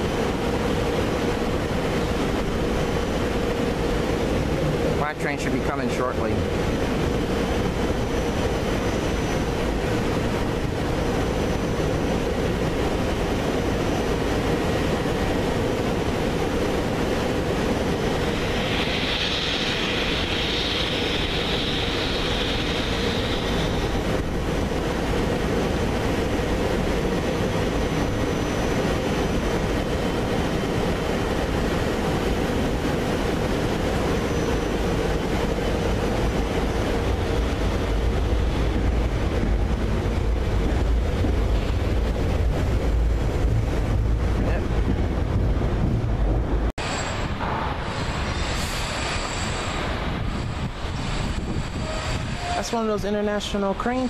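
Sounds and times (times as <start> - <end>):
train rumbling: 0.0 - 54.0
high squeal: 18.1 - 24.0.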